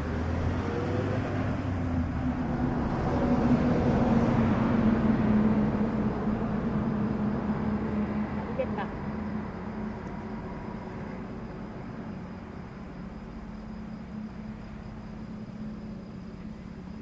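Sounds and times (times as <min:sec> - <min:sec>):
outdoor background noise: 0:00.0 - 0:17.0.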